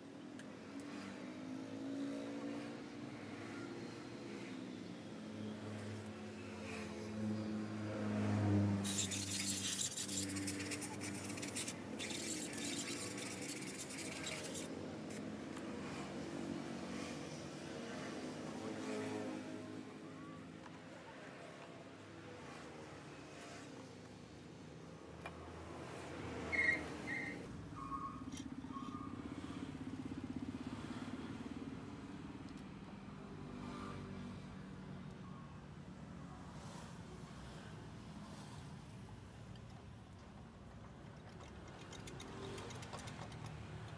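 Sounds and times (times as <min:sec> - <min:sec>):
compressed air hissing from hose: 0:08.8 - 0:14.7.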